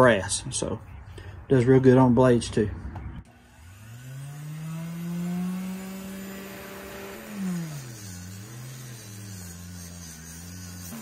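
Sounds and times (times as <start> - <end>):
bench grinder motor humming: 3.3 - 11.0.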